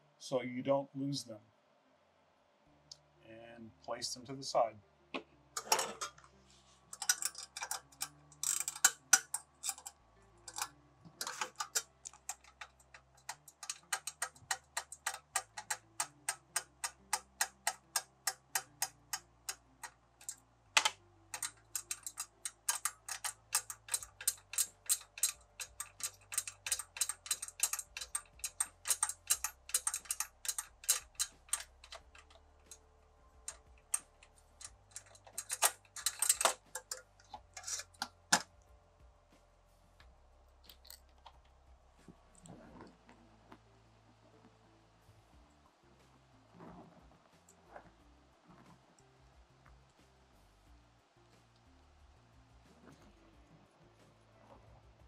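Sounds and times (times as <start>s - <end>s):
ratchet clicking: 6.9s - 38.5s.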